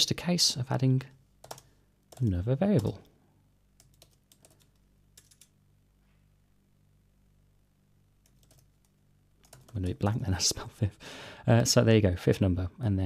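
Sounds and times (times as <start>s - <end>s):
low steady hum: 0.0s - 13.0s
keyboard typing: 1.4s - 3.0s, 3.8s - 5.6s, 8.2s - 10.0s.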